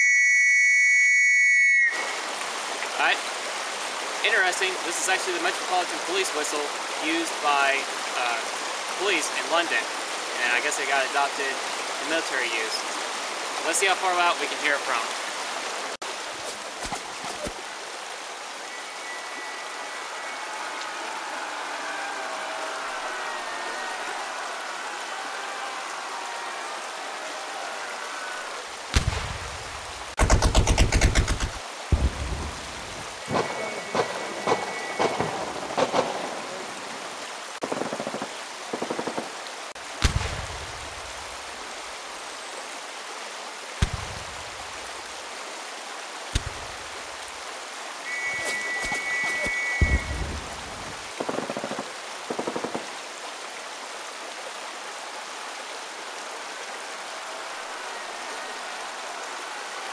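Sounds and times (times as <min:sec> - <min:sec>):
distant whistle blast: 0:00.0 - 0:02.2, 0:18.6 - 0:24.9, 0:33.2 - 0:36.2, 0:48.0 - 0:50.9
creek rushing: 0:01.4 - 0:59.9
shell explosions: 0:28.9 - 0:29.5, 0:33.3 - 0:36.2, 0:40.0 - 0:40.6, 0:49.8 - 0:50.6
machine-gun burst: 0:30.2 - 0:31.6
rifle shots: 0:30.2 - 0:32.1.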